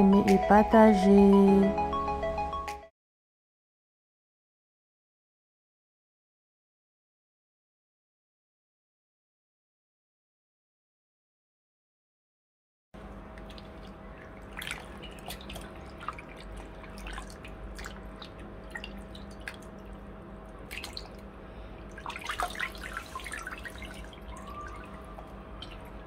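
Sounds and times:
faint steady hum: 13.0s - 26.0s
water dripping and splashing: 13.0s - 26.0s.

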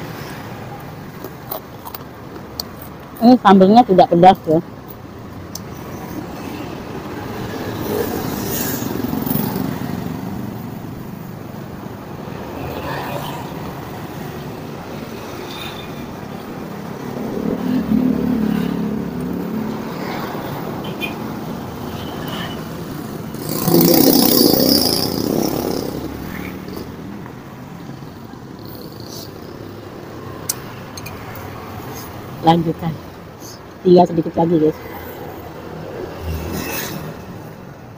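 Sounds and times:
vehicle passing by: 6.1s - 11.2s, 12.2s - 32.9s, 34.8s - 37.4s.

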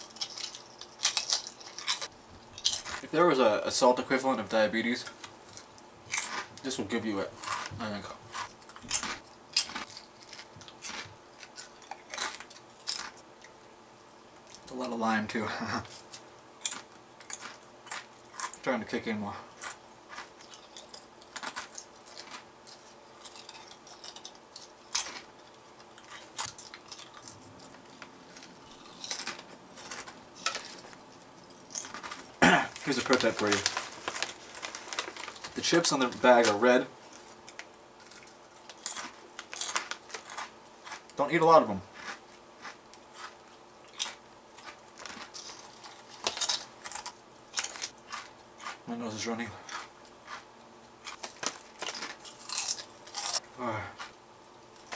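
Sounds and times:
chips crunching: 0.0s - 3.3s, 5.0s - 13.6s, 15.8s - 54.9s
foil bag crinkling: 21.4s - 40.5s.

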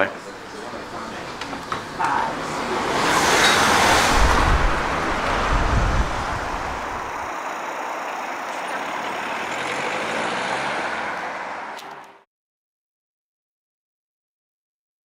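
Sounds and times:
traffic noise: 0.0s - 12.3s
truck engine rumble: 0.4s - 12.2s.

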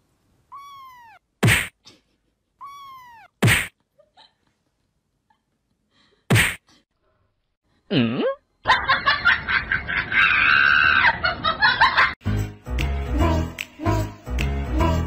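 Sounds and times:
sharp smack: 1.4s - 1.8s, 3.4s - 3.7s, 6.3s - 6.6s
music: 12.2s - 15.0s.

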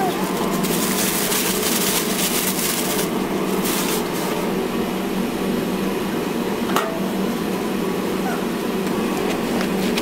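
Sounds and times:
low mechanical hum: 0.0s - 10.0s
bursts of hiss: 0.1s - 4.4s.

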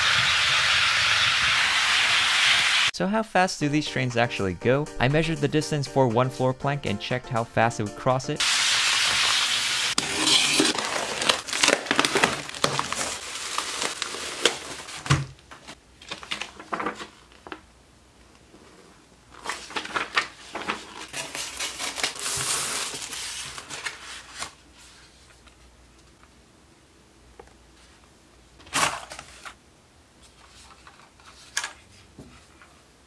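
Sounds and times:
paper crinkling: 10.0s - 17.6s, 19.3s - 25.6s.

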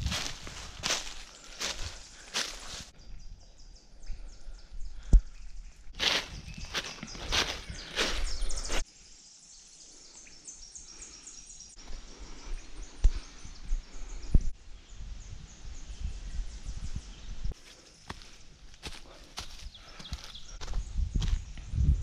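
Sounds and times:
footsteps crunching dry leaves: 0.0s - 2.9s, 6.0s - 8.8s, 17.6s - 20.8s.

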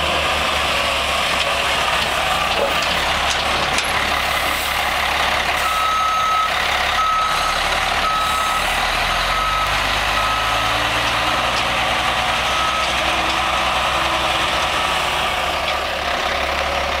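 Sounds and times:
truck engine running: 0.0s - 17.0s
truck reverse alarm beeping: 2.2s - 15.8s.

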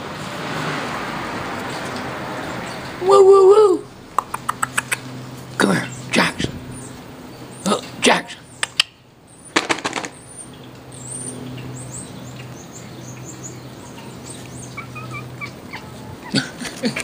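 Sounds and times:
small birds chirping faintly: 3.9s - 16.4s.

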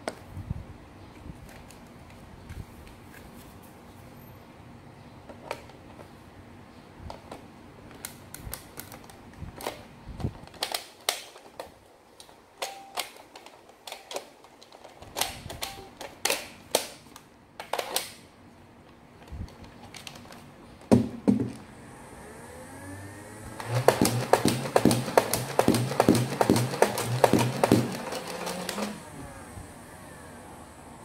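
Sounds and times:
magazine knocking into blaster: 23.8s - 28.0s.

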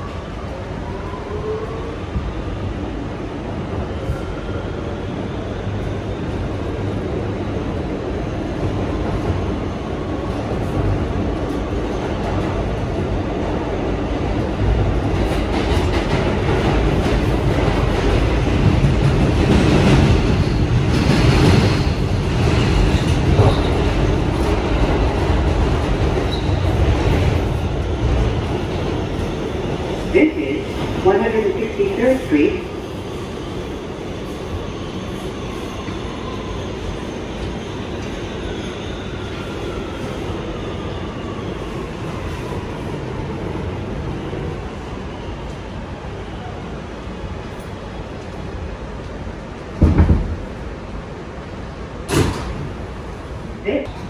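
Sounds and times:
subway train running: 0.0s - 54.0s.

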